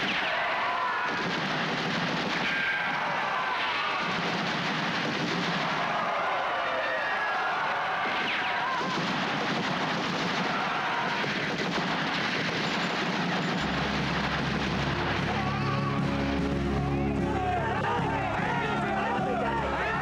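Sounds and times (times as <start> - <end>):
rapid gunfire: 0.0 - 15.5.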